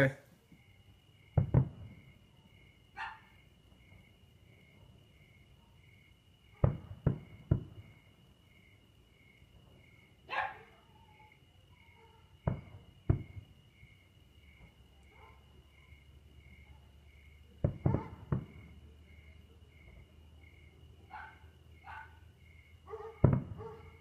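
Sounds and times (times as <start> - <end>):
distant fireworks bangs: 1.3 - 2.3, 6.5 - 8.2, 12.3 - 13.6, 17.4 - 19.0, 22.9 - 24.0
dog barking: 3.0 - 3.3, 10.3 - 11.1, 11.9 - 12.3, 15.1 - 15.5, 17.8 - 18.3, 21.0 - 22.2, 22.9 - 24.0.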